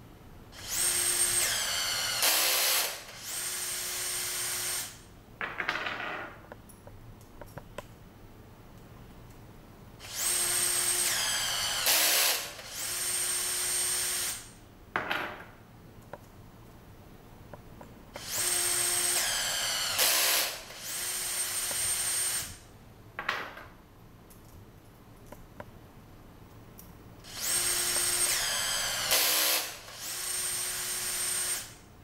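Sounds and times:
rivet tool motor whining: 0:18.2 - 0:22.6, 0:27.3 - 0:31.8.

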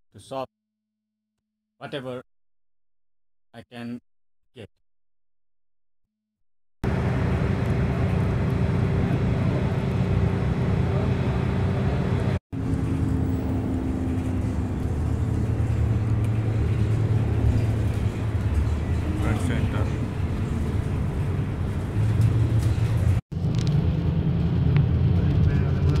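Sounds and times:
low hum: 0:06.8 - 0:26.0
vehicle engine and road noise: 0:06.8 - 0:26.0.

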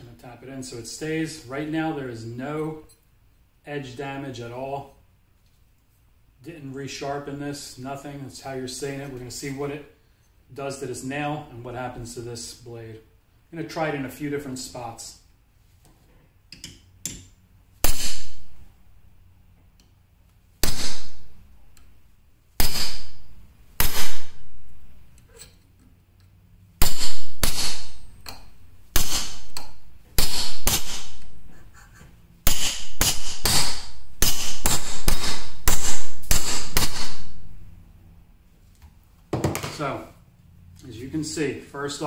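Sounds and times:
hammer striking knife blade: 0:16.6 - 0:18.5, 0:20.6 - 0:21.2, 0:22.6 - 0:24.4, 0:26.8 - 0:31.4, 0:32.4 - 0:37.4.

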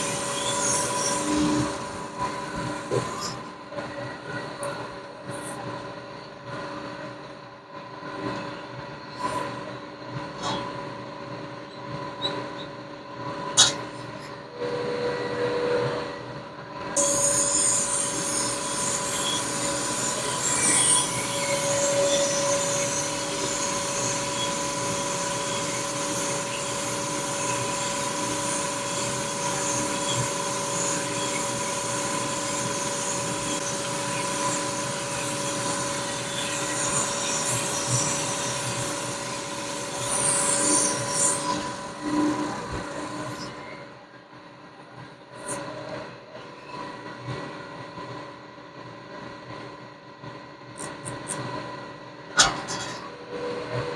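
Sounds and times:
metallic squealing cutting: 0:17.0 - 0:43.6
machine tool humming: 0:17.0 - 0:43.7.

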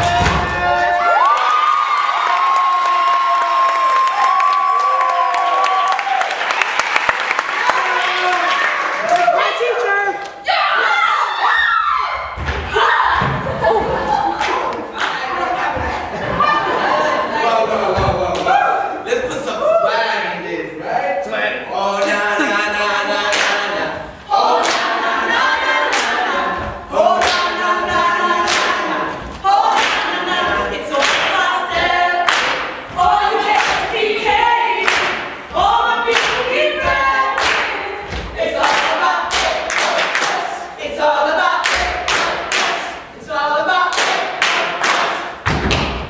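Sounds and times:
stomps and claps: 0:00.0 - 0:01.5, 0:25.9 - 0:27.6, 0:28.4 - 0:40.5, 0:41.6 - 0:43.0, 0:43.9 - 0:46.0
group chanting in unison: 0:12.7 - 0:20.5, 0:21.2 - 0:45.4.

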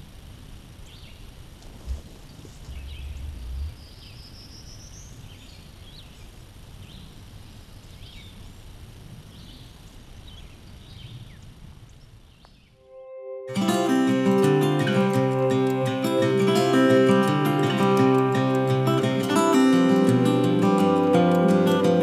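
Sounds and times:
songbirds chirping: 0:00.7 - 0:12.8.

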